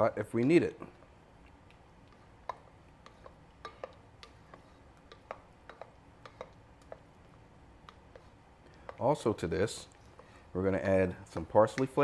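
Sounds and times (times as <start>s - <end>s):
spatula tapping and scraping bowl: 1.7s - 10.4s, 11.2s - 12.0s.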